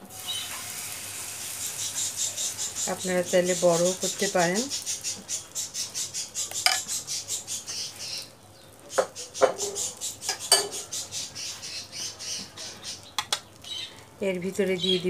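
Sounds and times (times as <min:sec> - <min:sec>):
spoon scraping a pan: 0:06.4 - 0:07.8, 0:08.9 - 0:11.0
spoon tapping on a pan: 0:06.6 - 0:06.9, 0:09.0 - 0:10.8, 0:13.2 - 0:13.4.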